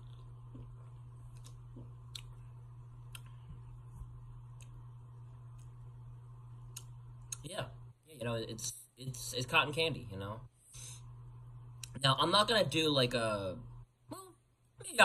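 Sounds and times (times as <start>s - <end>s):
faint clicks: 0.0s - 5.8s, 6.6s - 7.5s
steady low hum: 0.0s - 15.0s.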